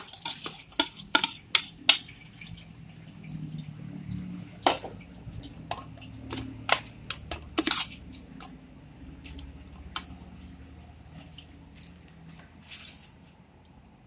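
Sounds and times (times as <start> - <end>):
spoon clinking on metal pot: 0.0 - 2.4.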